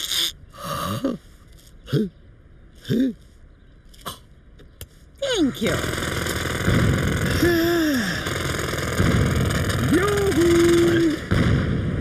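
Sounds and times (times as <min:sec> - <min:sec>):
jackhammer hammering: 0:05.8 - 0:11.0.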